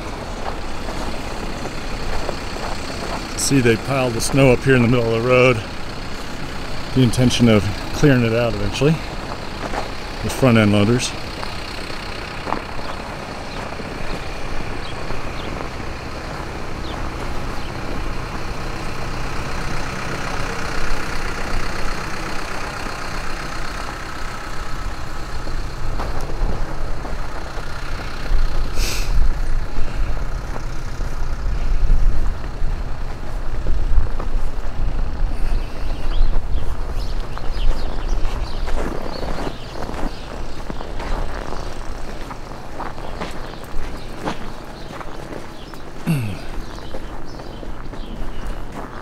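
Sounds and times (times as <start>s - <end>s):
heavy diesel engine running: 0.0s - 49.0s
short hiss: 28.7s - 29.2s.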